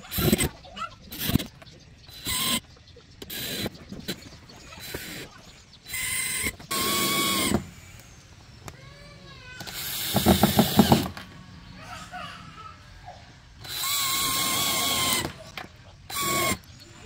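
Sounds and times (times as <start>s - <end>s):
electric drill whirring: 0.0s - 0.5s, 1.1s - 1.5s, 2.1s - 2.6s, 3.2s - 4.2s, 4.8s - 5.3s, 5.9s - 8.3s, 9.6s - 11.2s, 13.6s - 17.0s
loud rattling: 9.8s - 11.2s.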